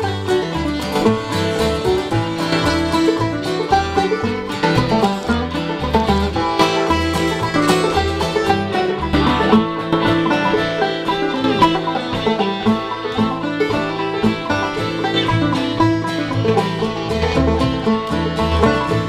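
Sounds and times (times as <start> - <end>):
acoustic guitar: 0.0 - 19.0
banjo: 0.0 - 19.0
bass: 0.0 - 19.0
fiddle: 0.0 - 19.0.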